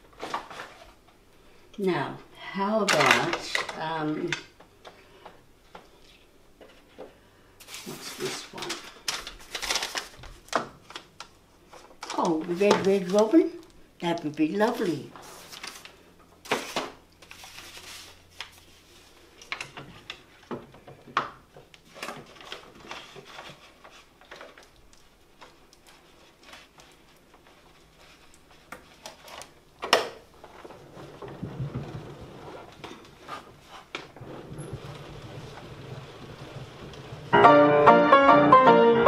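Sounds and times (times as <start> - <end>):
paper roll clicks and rustles: 0.0 - 1.2, 6.6 - 37.5
low uneven rumble: 30.4 - 37.9.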